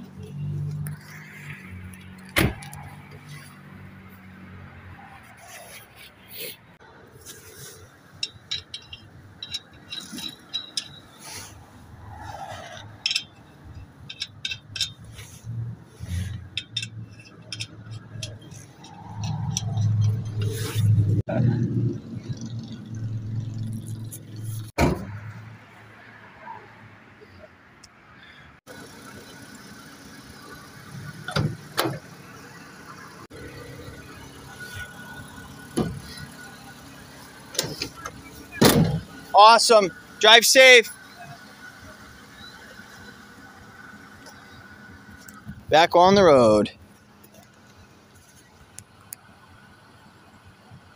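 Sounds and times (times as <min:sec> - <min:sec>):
metal lug nuts clinking: 0:00.3 - 0:04.3, 0:07.2 - 0:21.2, 0:29.4 - 0:49.0
sharp metallic clanks: 0:07.6 - 0:21.2.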